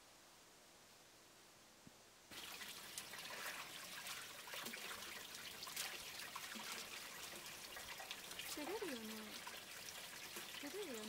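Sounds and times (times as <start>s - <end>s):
water drips and plops: 2.3s - 11.0s
water pouring into stone basin: 2.3s - 11.0s.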